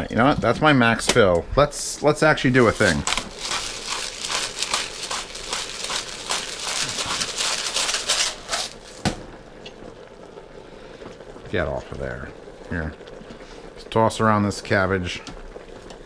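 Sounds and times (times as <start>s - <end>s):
rustling and crinkling: 2.5s - 9.2s.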